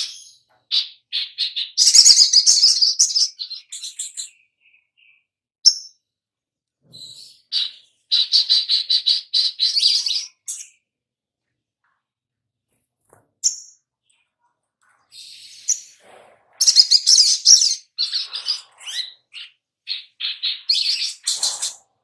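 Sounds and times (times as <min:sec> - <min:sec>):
bird chirping and trilling: 0:00.0 - 0:06.0, 0:06.9 - 0:10.9, 0:13.4 - 0:14.4, 0:15.0 - 0:22.0.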